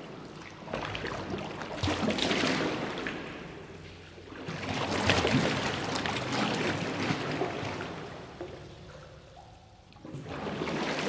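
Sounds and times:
water sloshing in a sewer: 0:00.0 - 0:11.0.

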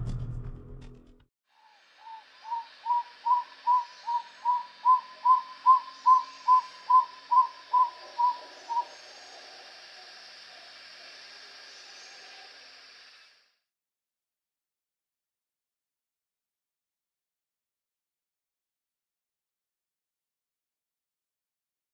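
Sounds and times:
music: 0:00.0 - 0:01.3
bird whistled song: 0:01.6 - 0:09.0
faint hiss: 0:01.6 - 0:13.7.

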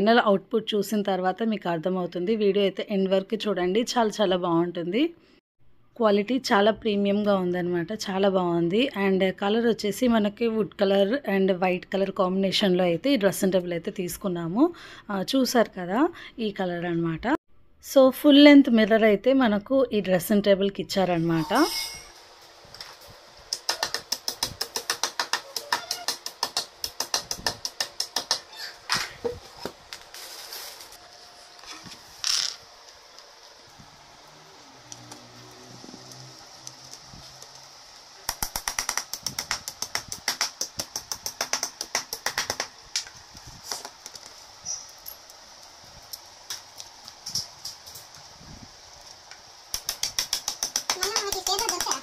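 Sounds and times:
hammer tapping wooden dowels: 0:23.5 - 0:28.5, 0:49.8 - 0:52.0
fast run of sharp clicks: 0:49.7 - 0:52.0.

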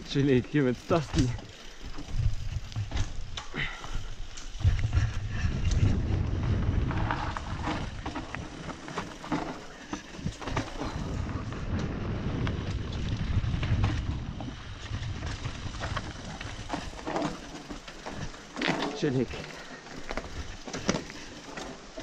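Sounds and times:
bike rattling: 0:00.0 - 0:22.0
tyres on dirt: 0:00.0 - 0:22.0
wind rumble on microphone: 0:01.1 - 0:09.4, 0:10.1 - 0:17.4.

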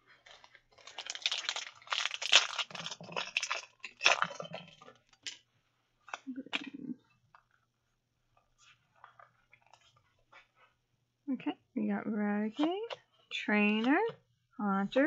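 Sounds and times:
foil wrapper crinkling: 0:00.2 - 0:05.4.

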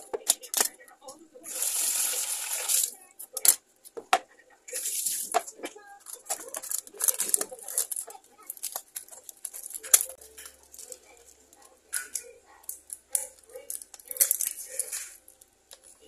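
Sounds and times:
plastic tub crinkling and clicking: 0:00.0 - 0:01.2, 0:05.3 - 0:16.0.

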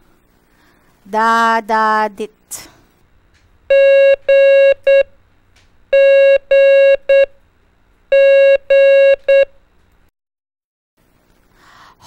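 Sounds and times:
morse code beeps: 0:03.7 - 0:05.1, 0:06.0 - 0:07.3, 0:08.1 - 0:09.5.

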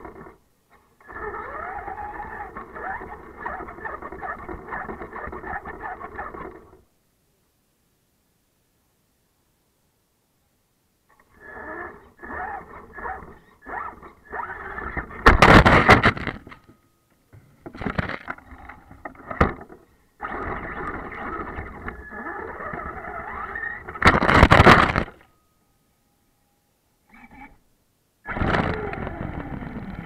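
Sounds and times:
wheels churning through snow: 0:00.0 - 0:06.8, 0:11.2 - 0:16.4, 0:20.2 - 0:25.2, 0:28.3 - 0:30.0
electric motor whining: 0:01.0 - 0:06.8, 0:11.2 - 0:15.9, 0:20.2 - 0:25.1, 0:28.3 - 0:30.0.

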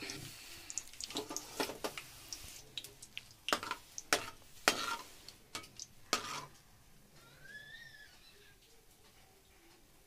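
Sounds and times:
metal spatula scraping frying pan: 0:03.5 - 0:06.6.

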